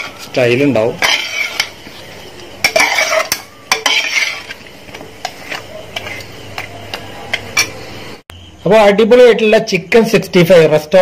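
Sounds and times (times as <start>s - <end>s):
metal spoon scraping a pan: 0.0s - 7.8s.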